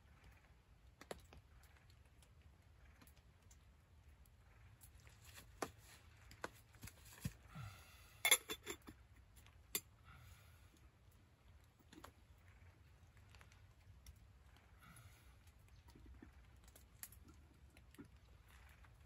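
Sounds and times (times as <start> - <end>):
metal cookware clinking: 8.3 - 8.9.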